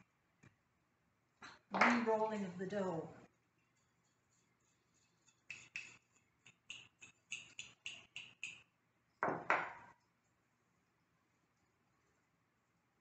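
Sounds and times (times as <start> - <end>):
spoon tapping glass jar: 5.3 - 10.0.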